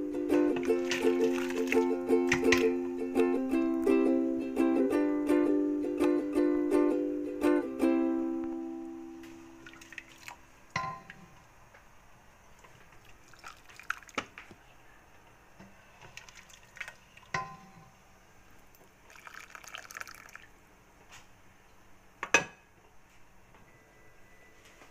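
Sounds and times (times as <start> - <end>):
liquid dripping and splashing: 0.6 - 2.6, 9.6 - 10.4, 12.6 - 14.4, 16.0 - 17.4, 19.1 - 20.5
soup pouring into bowl: 0.6 - 2.6, 9.6 - 10.4, 13.0 - 14.3, 16.0 - 17.4, 19.0 - 20.6.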